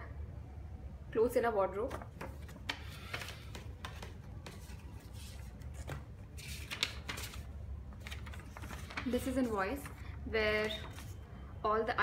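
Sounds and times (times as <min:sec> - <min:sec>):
paper rustling: 0:01.9 - 0:11.2.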